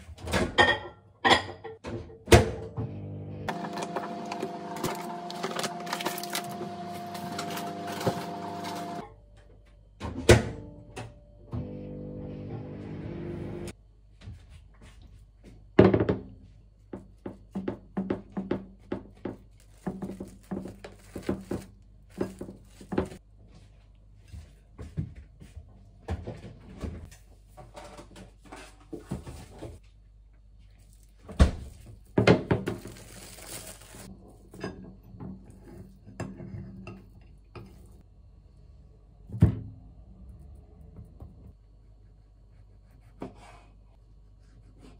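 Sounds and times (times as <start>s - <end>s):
kitchenware clattering: 0.4s - 2.2s.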